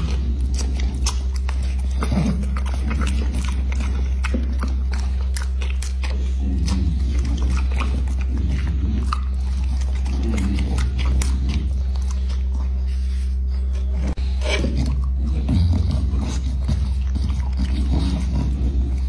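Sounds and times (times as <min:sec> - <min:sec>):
dog chewing: 0:00.0 - 0:19.0
steady low hum: 0:00.0 - 0:19.0.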